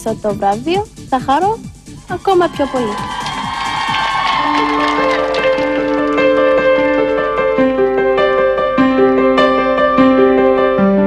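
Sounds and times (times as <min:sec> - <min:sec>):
slow piano melody: 0:04.4 - 0:11.0.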